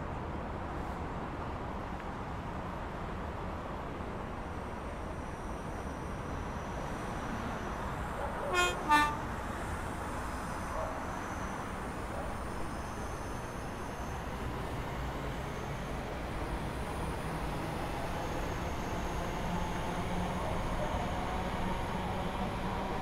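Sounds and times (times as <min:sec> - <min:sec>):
train horn blasts: 0:08.4 - 0:09.4.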